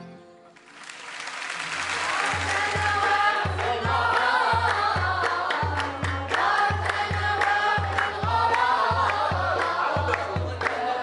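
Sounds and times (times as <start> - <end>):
group singing sacred song: 1.6 - 11.0.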